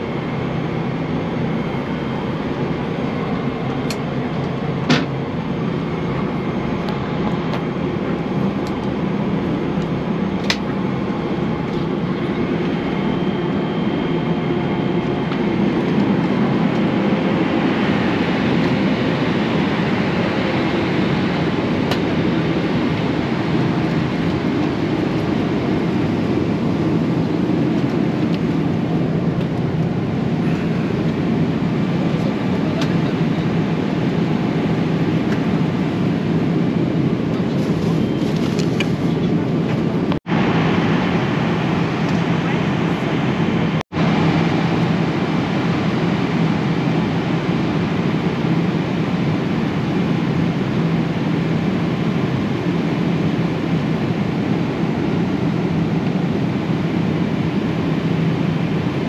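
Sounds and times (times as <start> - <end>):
airplane cabin engine roar: 0.0 - 59.0.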